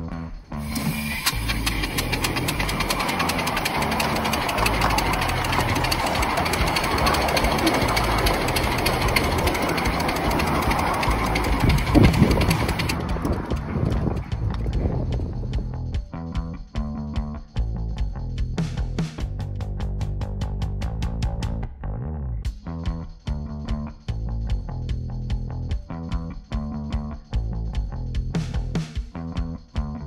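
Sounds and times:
steam locomotive running on track: 0:00.6 - 0:15.2.

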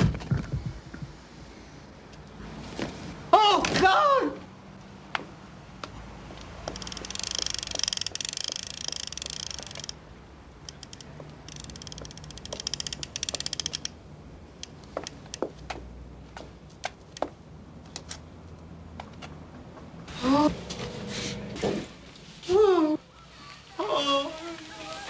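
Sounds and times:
rapid light clicking: 0:06.7 - 0:10.0, 0:10.6 - 0:14.0
footsteps on paving stones: 0:14.9 - 0:18.0.

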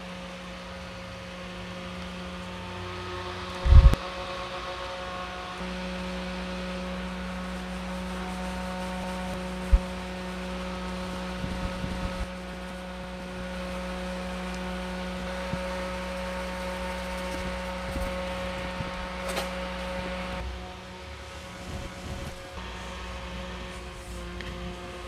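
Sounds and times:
desk fans humming: 0:00.0 - 0:25.0
shredded paper rustling: 0:05.6 - 0:20.4.

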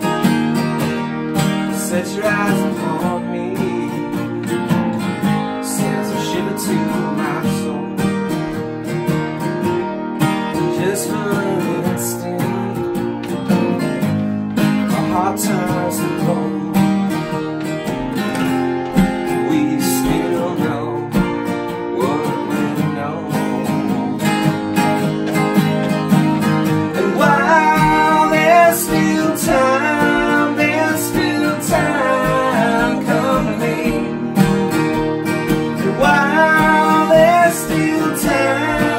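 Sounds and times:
acoustic guitars strumming: 0:00.0 - 0:38.9
man singing: 0:01.7 - 0:04.5, 0:05.5 - 0:08.3, 0:10.6 - 0:13.1, 0:14.8 - 0:17.0, 0:19.2 - 0:24.3, 0:26.8 - 0:34.5, 0:35.7 - 0:38.9.

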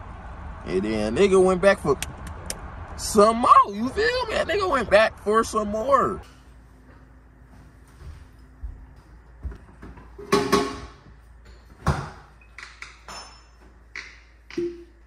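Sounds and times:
glass bottle knocks and clinks: 0:13.1 - 0:13.6.

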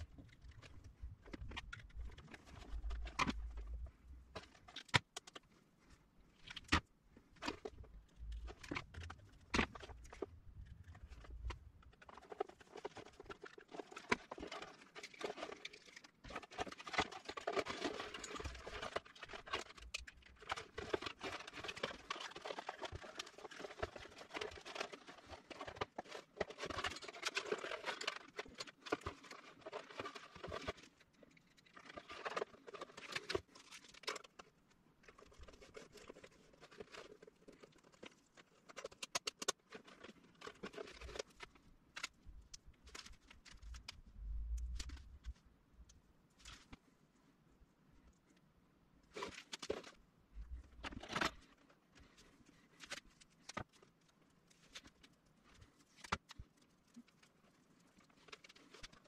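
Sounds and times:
rustling and crinkling: 0:00.0 - 0:59.0.

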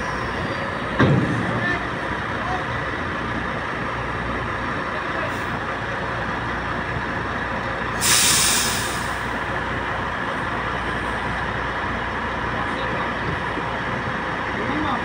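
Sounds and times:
diesel truck engine running: 0:00.0 - 0:15.0
air brake hiss: 0:08.0 - 0:09.3.

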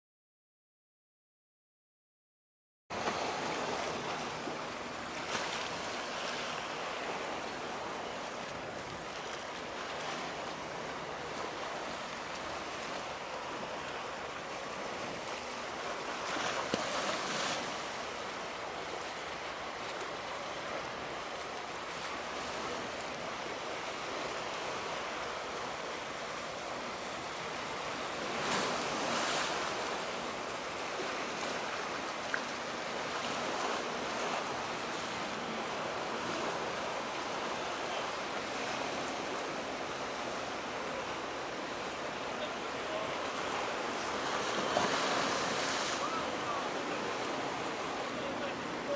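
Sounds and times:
water waves rushing: 0:02.9 - 0:48.9
wind: 0:02.9 - 0:48.9.

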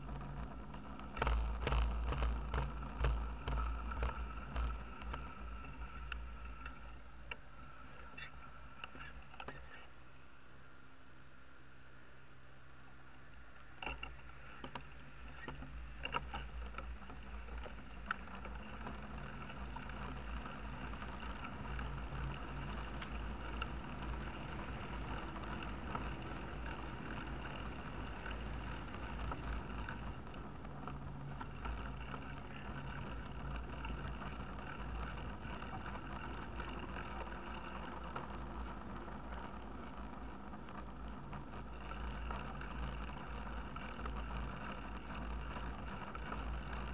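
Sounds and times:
bike knocks and rattles: 0:00.0 - 0:07.4
bike rolling and wind rush: 0:00.0 - 0:46.9.

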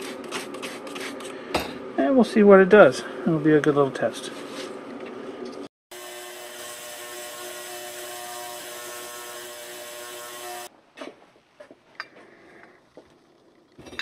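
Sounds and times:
ultrasonic cleaner buzzing hum: 0:05.9 - 0:10.7.

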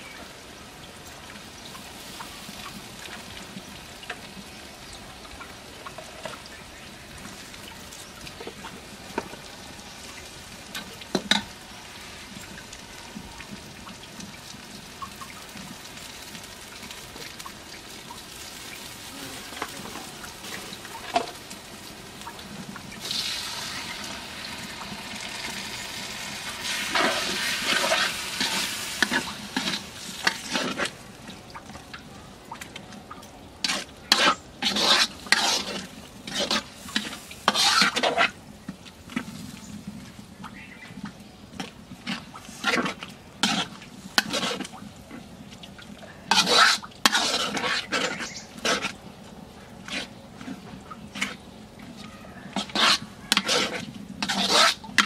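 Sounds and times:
onions sizzling in wok: 0:00.0 - 0:31.8, 0:33.5 - 0:55.0
water poured into hissing pan: 0:10.9 - 0:31.0
metal ladle scraping wok: 0:23.0 - 0:30.9, 0:33.6 - 0:38.4, 0:42.0 - 0:44.7, 0:46.3 - 0:49.0, 0:52.5 - 0:55.0.

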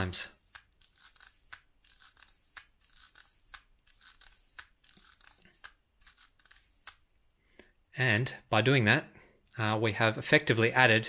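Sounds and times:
gears clicking and rasping: 0:00.3 - 0:07.0
mechanical calculator crank clicks: 0:00.4 - 0:07.0.

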